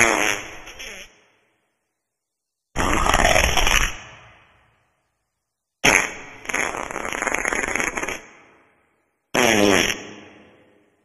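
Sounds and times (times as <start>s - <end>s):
wet farts sputtering: 0.0s - 1.1s, 2.8s - 4.0s, 5.8s - 8.4s, 9.4s - 10.1s.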